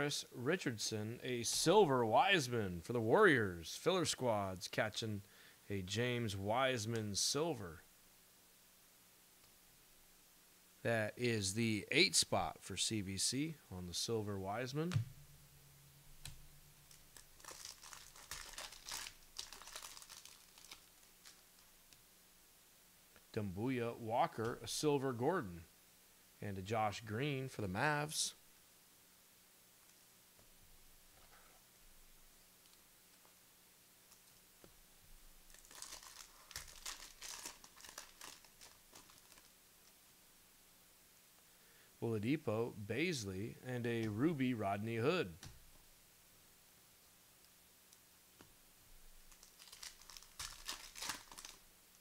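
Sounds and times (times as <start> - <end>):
wrapper crinkling: 16.2 - 22.0, 35.4 - 39.6, 49.2 - 51.7.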